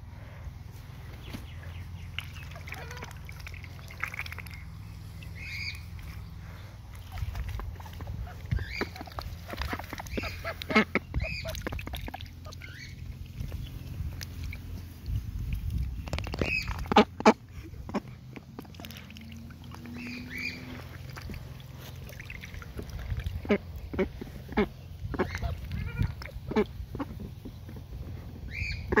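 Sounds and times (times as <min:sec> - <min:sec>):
ducks splashing in water: 0:01.2 - 0:29.0
duck quacks: 0:07.1 - 0:11.7, 0:23.4 - 0:27.2, 0:28.5 - 0:29.0.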